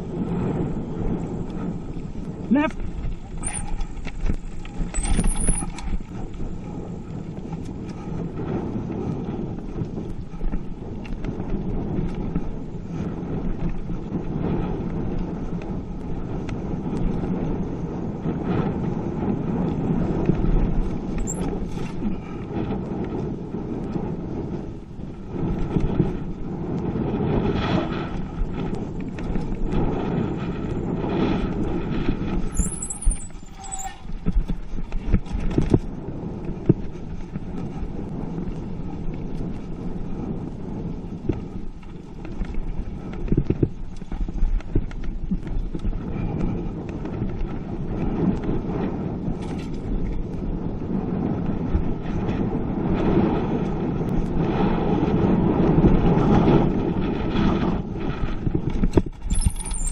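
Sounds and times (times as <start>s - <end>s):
bike knocking and rattling: 0.0s - 59.9s
bike tyres rumbling on dirt: 0.0s - 59.9s
brief high squeal: 3.4s - 3.7s, 5.0s - 5.7s, 32.5s - 34.1s, 59.3s - 59.9s.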